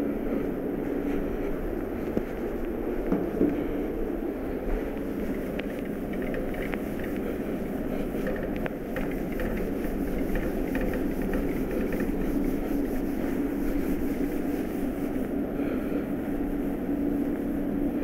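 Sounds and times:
low hum: 0:00.0 - 0:18.0
duster wiping whiteboard: 0:00.3 - 0:18.0.

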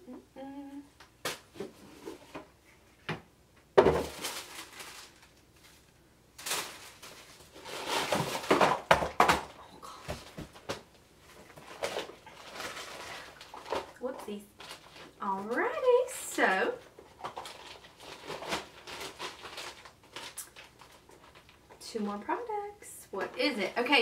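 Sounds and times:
plastic packaging crinkling: 0:04.0 - 0:09.5, 0:10.3 - 0:16.1, 0:16.8 - 0:21.8.

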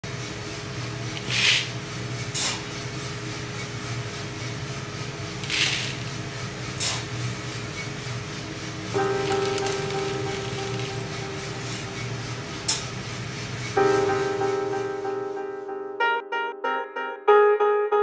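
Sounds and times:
steady low hum: 0:00.1 - 0:15.4
coffee beans rattling in scoop: 0:01.2 - 0:01.7, 0:05.4 - 0:06.1, 0:09.0 - 0:11.8.

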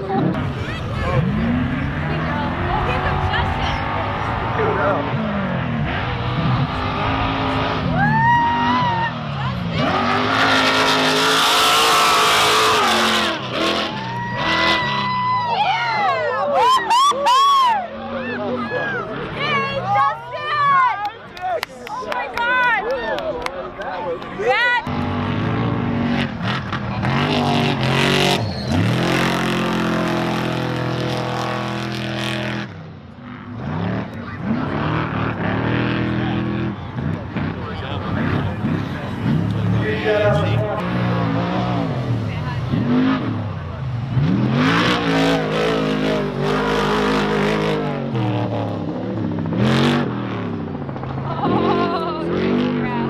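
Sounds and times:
race truck engine at high revs: 0:00.0 - 0:53.0.

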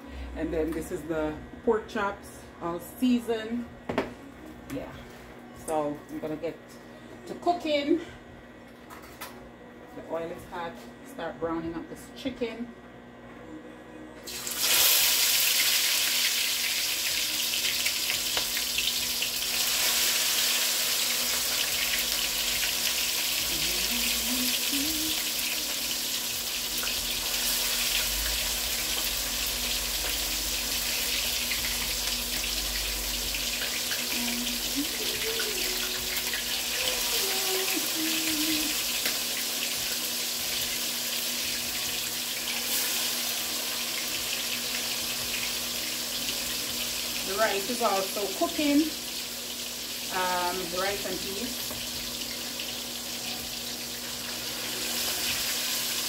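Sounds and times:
chicken sizzling in hot oil: 0:14.3 - 0:56.0.

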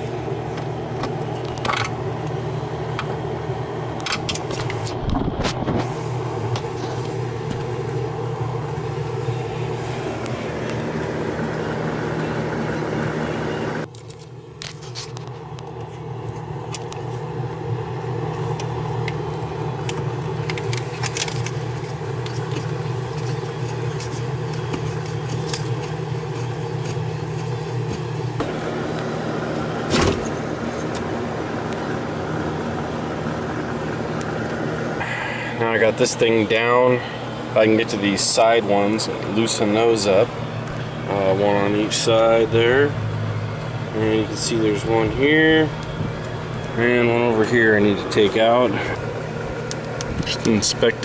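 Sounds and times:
low mechanical hum: 0:00.0 - 0:51.0
hand tools clicking and scraping: 0:19.9 - 0:28.5.

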